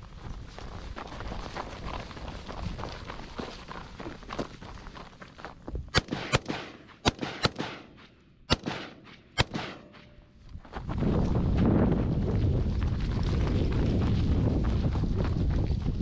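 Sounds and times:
rifle shots: 5.9 - 10.2
steady low rumble: 6.0 - 16.0.

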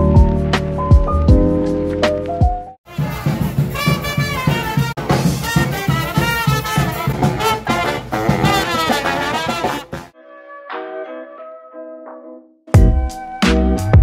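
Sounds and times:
quick steady drum beat: 2.9 - 10.1
brass band playing: 2.9 - 10.2
trumpets and saxophone: 2.9 - 10.2.

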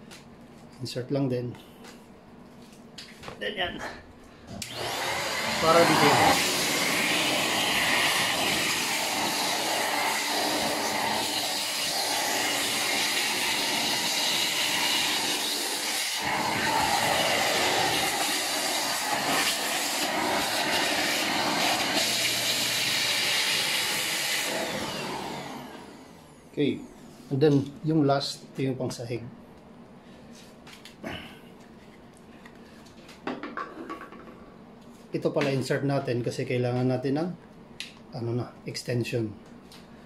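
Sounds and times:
handheld vacuum cleaner running: 4.5 - 26.5.

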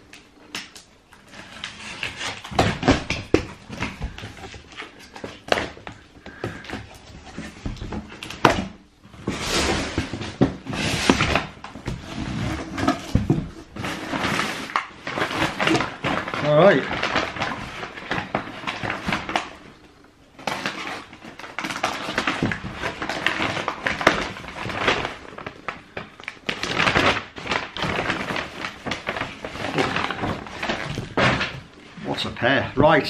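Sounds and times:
paper rustling: 20.4 - 32.4.

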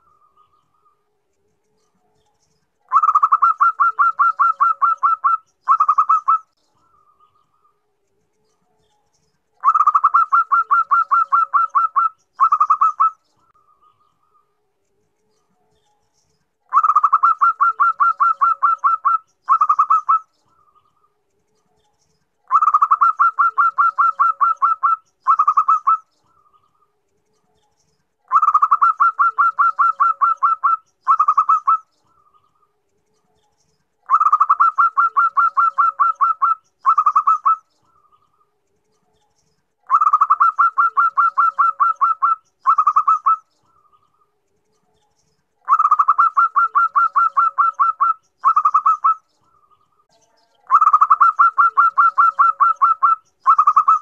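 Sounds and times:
dove cooing: 2.9 - 7.4, 9.6 - 13.2, 16.7 - 20.8, 22.5 - 26.1, 28.3 - 32.4, 34.0 - 38.2, 39.9 - 43.9, 45.6 - 54.0.

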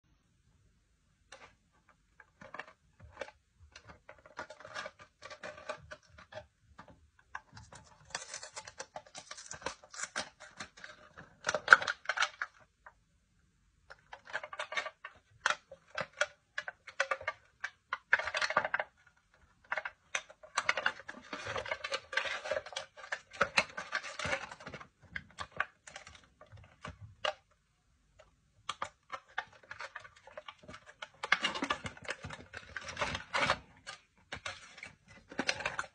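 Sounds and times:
foil crinkling and plastic clicking: 28.7 - 35.9.

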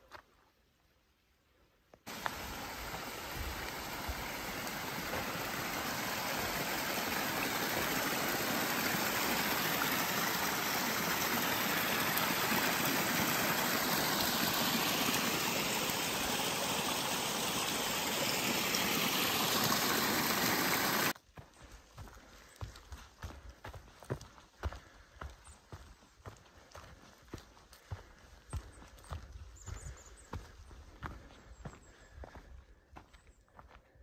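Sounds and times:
creek cascading over rocks: 2.1 - 21.2.

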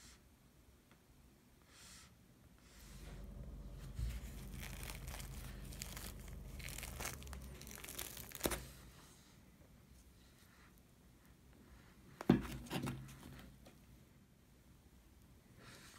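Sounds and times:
bread crust crackling as torn: 4.2 - 8.7.

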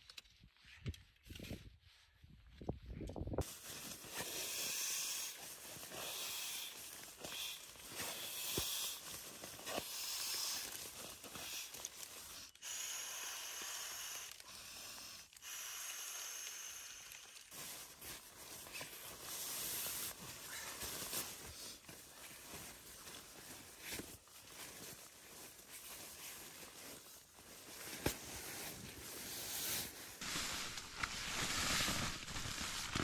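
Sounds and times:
snow shovel scraping: 3.4 - 11.7, 27.6 - 33.0
air hissing into sleeping pad: 3.4 - 20.2, 27.7 - 33.0.

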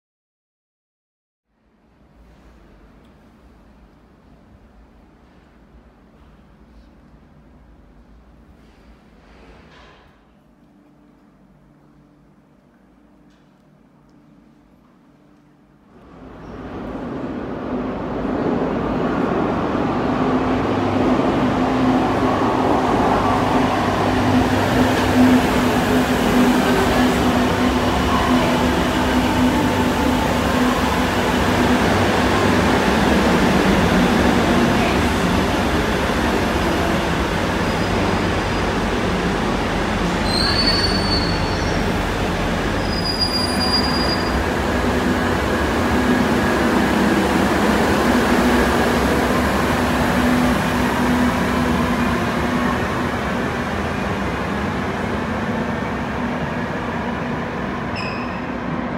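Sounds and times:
train rumbling in station: 1.6 - 58.9
high wheel squeals: 40.2 - 41.9, 42.8 - 44.4, 58.0 - 58.5.

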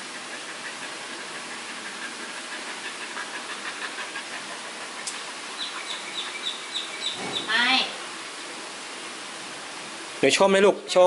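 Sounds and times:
dog panting: 0.0 - 7.1
steady background hiss: 0.0 - 11.0.

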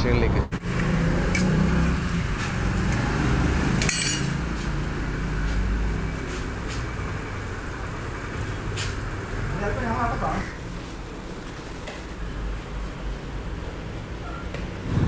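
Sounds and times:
metal ladles and pots clinking: 3.8 - 4.5.

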